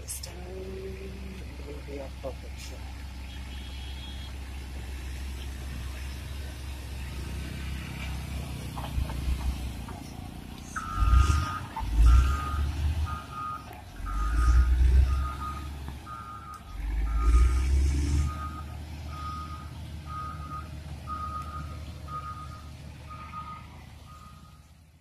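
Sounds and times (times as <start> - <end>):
diesel engine rumbling and revving: 0.0 - 25.0
reversing alarm beeping: 10.7 - 24.6.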